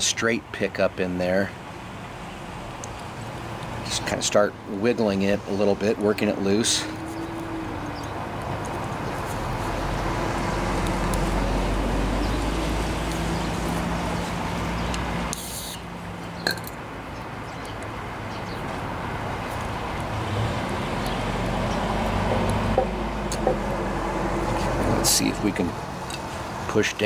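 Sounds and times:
road traffic rumble: 0:00.0 - 0:27.0
brief hiss: 0:15.3 - 0:15.8.

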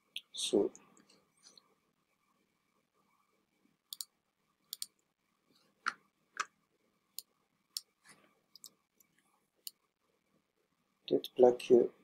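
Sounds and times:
computer mouse clicks: 0:03.9 - 0:04.1, 0:04.7 - 0:05.0.

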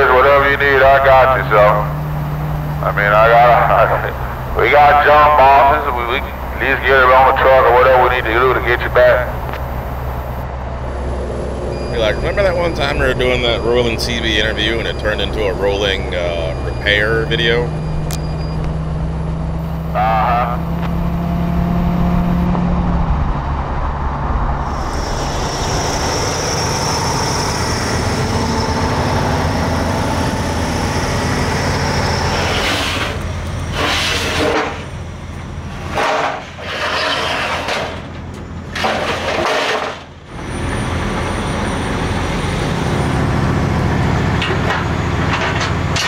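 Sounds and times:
diesel engine and road noise: 0:00.0 - 0:46.0
truck engine running: 0:00.0 - 0:46.0
metal ramps clanking: 0:35.8 - 0:40.2, 0:44.3 - 0:46.0.

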